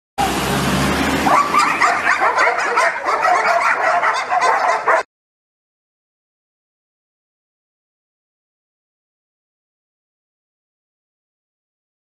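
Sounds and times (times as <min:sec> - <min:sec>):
dogs barking: 0:01.2 - 0:05.1.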